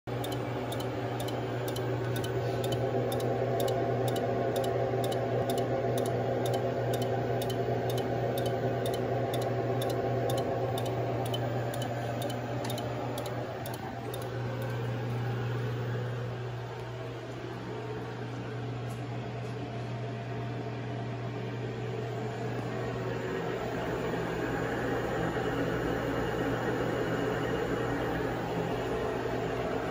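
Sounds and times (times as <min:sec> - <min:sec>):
electrical hum and whir: 0:00.0 - 0:29.9
faint high ticking: 0:00.1 - 0:14.8.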